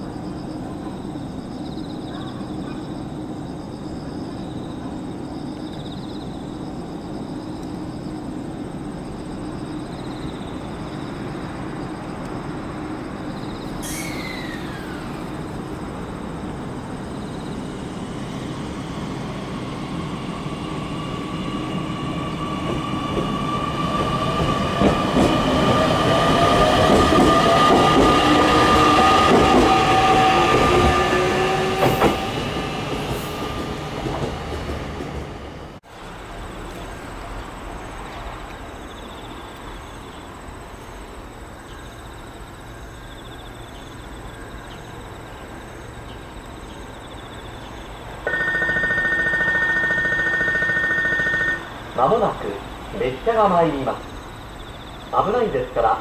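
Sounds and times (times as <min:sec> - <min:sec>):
electric train whine: 0:00.0 - 0:56.0
two-tone station alert: 0:48.3 - 0:51.7.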